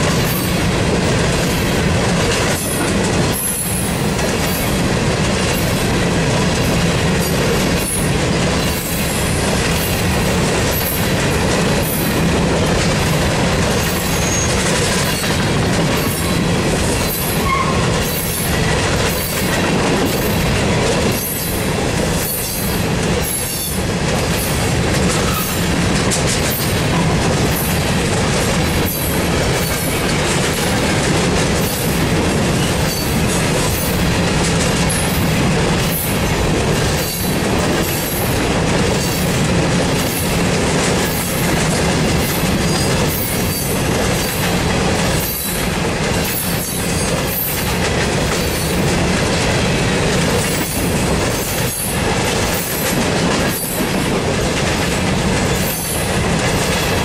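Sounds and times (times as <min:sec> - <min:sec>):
steel wheels rumbling on rail: 0:00.0 - 0:57.0
wheel clacks on rail: 0:00.0 - 0:57.0.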